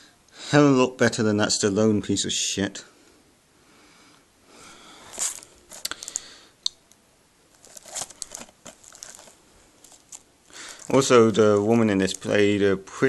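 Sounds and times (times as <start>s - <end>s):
plastic case crinkling and scraping: 5.1s - 6.2s, 7.5s - 12.6s.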